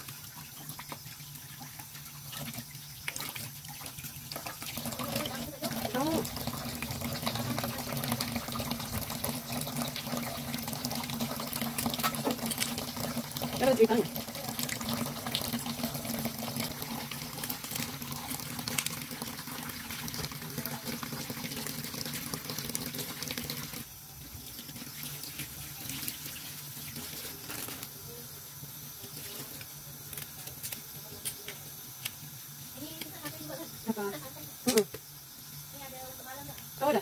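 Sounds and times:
water splashing: 0:00.0 - 0:23.9
tap water running into sink: 0:00.0 - 0:28.0, 0:36.2 - 0:37.0.

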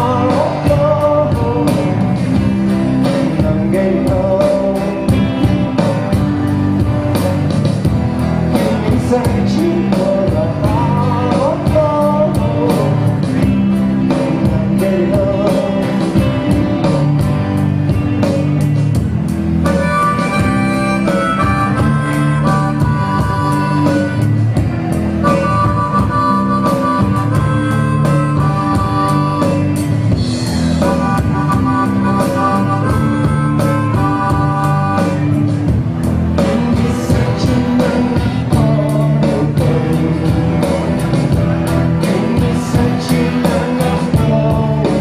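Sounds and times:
live rock band playing: 0:00.0 - 0:45.0
harmonica playing held chords: 0:15.9 - 0:42.2.

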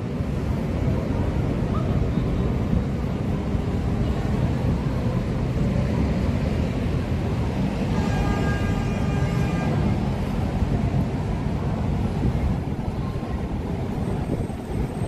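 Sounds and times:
city traffic rumble: 0:00.0 - 0:15.0
wind buffeting microphone: 0:09.7 - 0:15.0.

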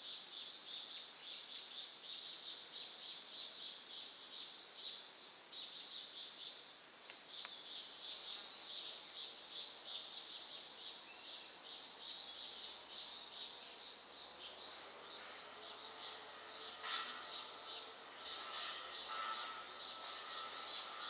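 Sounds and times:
faint clicks: 0:07.0 - 0:07.6
high-pitched pulsing chirping: 0:15.7 - 0:21.0.

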